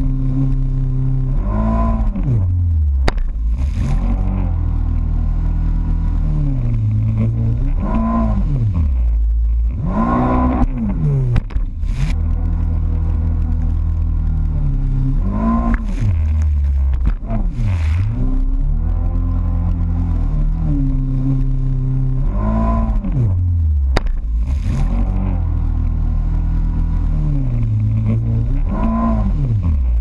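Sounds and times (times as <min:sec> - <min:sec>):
jet ski engine revving: 0:00.0 - 0:14.1, 0:26.8 - 0:30.0.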